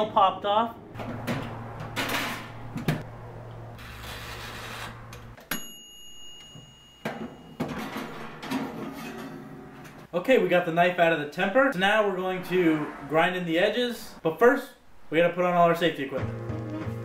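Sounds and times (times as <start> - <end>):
bell-like timer ding: 5.5 - 7.6
oven door and rack clattering: 7.1 - 10.1.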